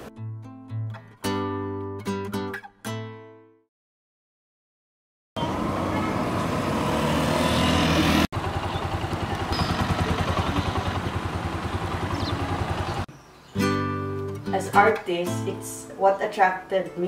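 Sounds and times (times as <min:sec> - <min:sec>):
small motorcycle engine running: 0:05.4 - 0:13.1.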